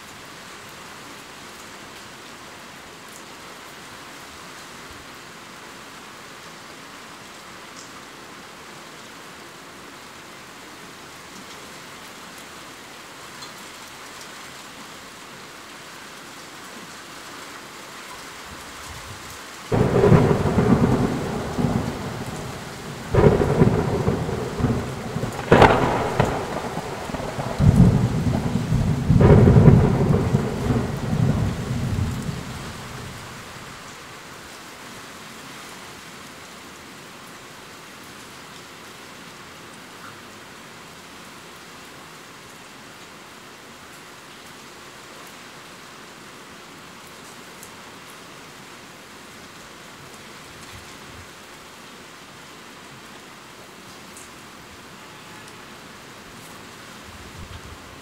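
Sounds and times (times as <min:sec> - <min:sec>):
heavy rain: 0:00.0 - 0:58.0
thunder cracks and rumbling: 0:19.7 - 0:33.5.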